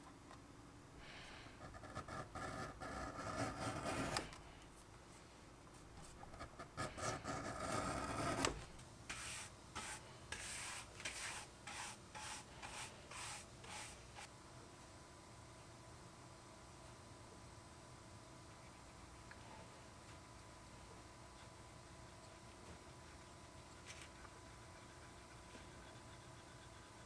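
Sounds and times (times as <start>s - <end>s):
edge beveler scraping leather: 1.6s - 4.3s
brisk rubbing strokes: 9.1s - 14.3s.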